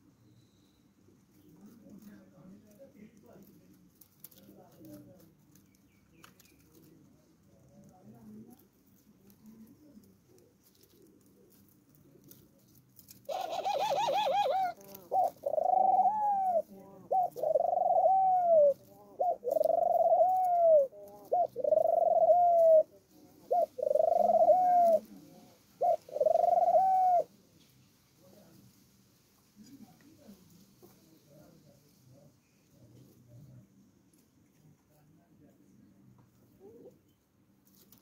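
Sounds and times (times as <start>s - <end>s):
dove cooing: 13.3s - 27.3s, 36.6s - 37.0s.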